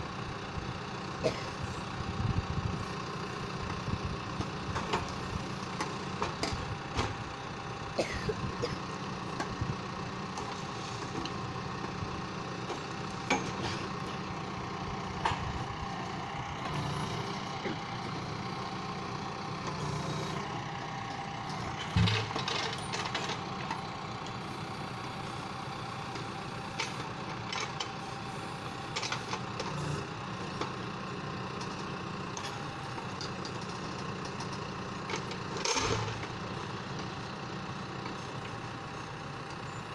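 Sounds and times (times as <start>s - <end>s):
tractor engine running: 0.0s - 39.9s
logs knocking and clunking: 21.5s - 23.8s.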